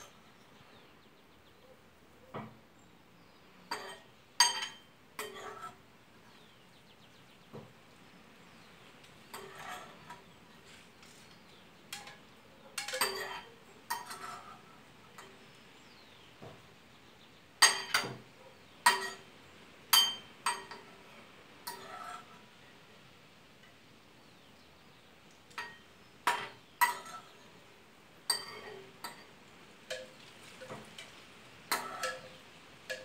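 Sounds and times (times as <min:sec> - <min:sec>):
metal spoon clinking on ceramic bowl: 0:03.7 - 0:05.6, 0:12.8 - 0:14.5, 0:18.9 - 0:19.2, 0:20.0 - 0:20.9, 0:25.5 - 0:27.3, 0:28.3 - 0:29.3, 0:31.7 - 0:33.0.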